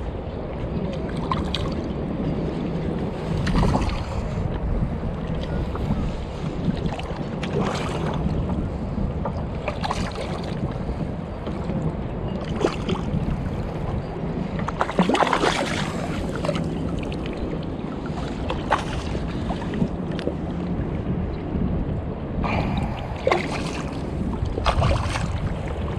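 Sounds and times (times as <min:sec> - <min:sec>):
water splashing against boat: 0:00.0 - 0:25.9
wind rumbling on microphone: 0:00.0 - 0:25.9.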